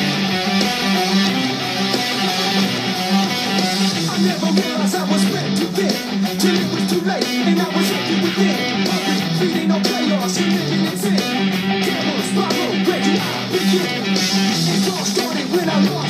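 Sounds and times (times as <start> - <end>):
electric guitar riff: 0.0 - 16.0
recorded song: 0.0 - 16.0.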